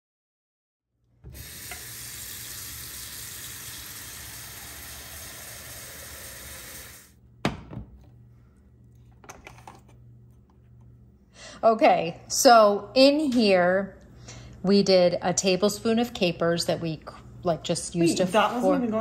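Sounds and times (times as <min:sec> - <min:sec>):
faucet running water into pot: 0:01.3 - 0:07.1.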